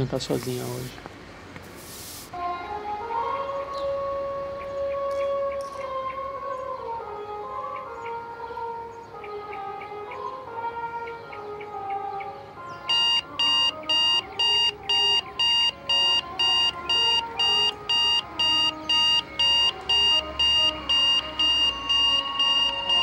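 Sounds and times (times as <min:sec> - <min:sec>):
soft background music: 0:02.4 - 0:23.0
digital alarm clock beeping: 0:12.9 - 0:23.0.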